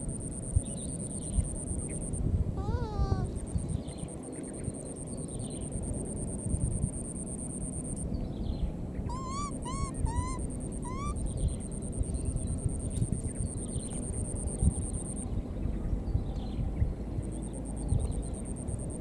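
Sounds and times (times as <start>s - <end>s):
steady high-pitched buzz: 0.0s - 19.0s
rising animal calls: 9.1s - 11.4s.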